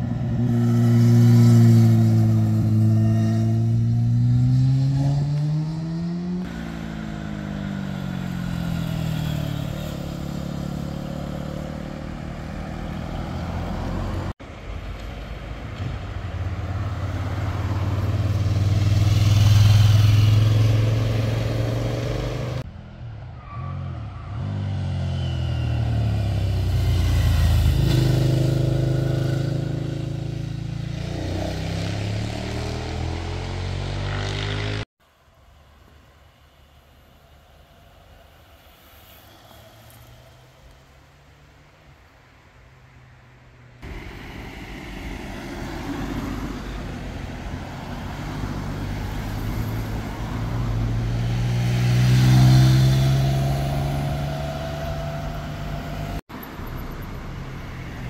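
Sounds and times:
motorcycles revving past: 0:00.0 - 0:14.4, 0:16.9 - 0:22.6, 0:24.5 - 0:34.9, 0:43.9 - 0:56.2.

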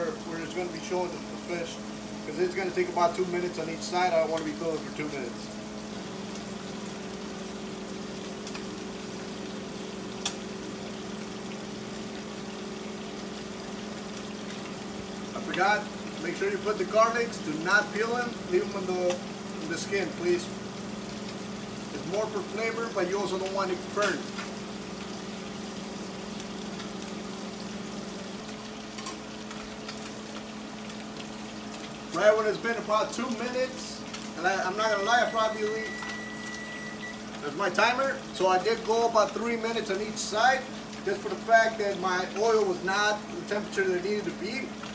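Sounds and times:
exhaust fan humming: 0:00.0 - 0:44.9
fish sizzling in hot oil: 0:00.0 - 0:44.9.

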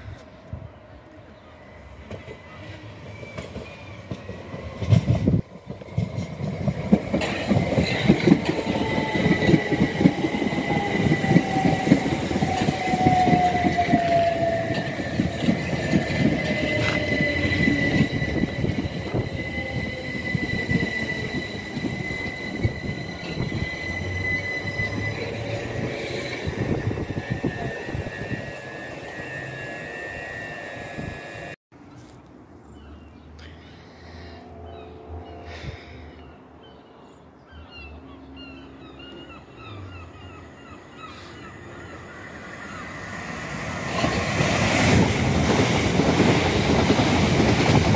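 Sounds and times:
train wheels rumbling on rails: 0:01.9 - 0:31.6, 0:41.9 - 0:47.9
train motor whine: 0:07.2 - 0:31.6
steady high tone: 0:08.5 - 0:31.6.

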